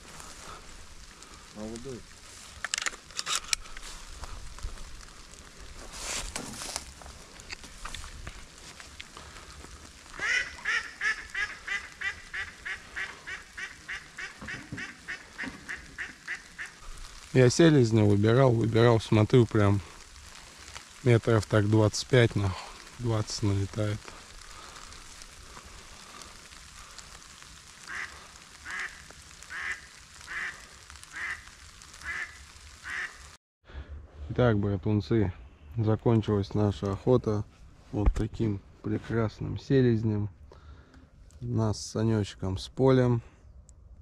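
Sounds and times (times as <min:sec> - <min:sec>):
duck quacking: 0:10.2 - 0:16.8, 0:27.9 - 0:31.4, 0:32.0 - 0:33.2.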